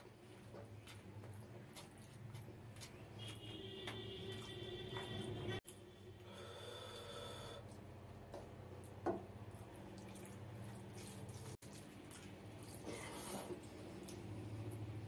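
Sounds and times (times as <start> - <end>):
fingers mixing wet food: 0.0 - 5.8, 7.6 - 15.0
chewing: 0.4 - 5.1, 9.5 - 14.8.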